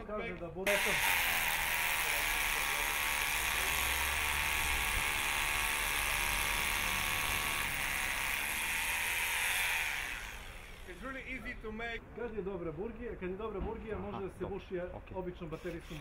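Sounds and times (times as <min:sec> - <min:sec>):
hammer drill drilling into concrete: 0:00.7 - 0:11.0.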